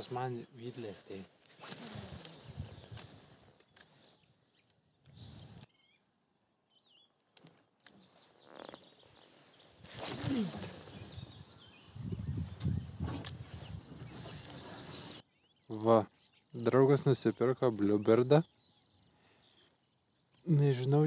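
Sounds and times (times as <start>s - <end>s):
faint bird chirps: 0.0s - 21.0s
loud rushing hiss: 1.6s - 3.5s, 10.0s - 12.0s.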